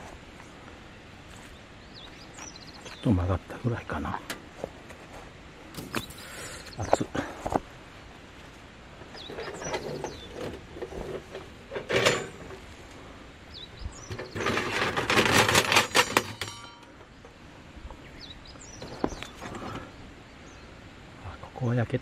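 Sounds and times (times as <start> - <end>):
birds chirping: 0.0 - 22.0
metal rattling: 9.2 - 12.6, 14.0 - 17.0
metal clank: 11.7 - 12.6, 14.1 - 17.2.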